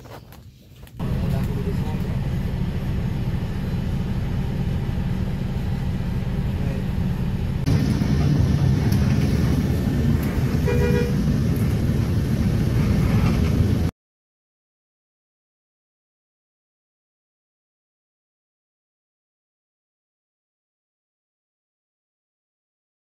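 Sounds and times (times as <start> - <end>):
bus engine and road noise: 0.0 - 13.9
vehicle horn honking: 10.5 - 11.3.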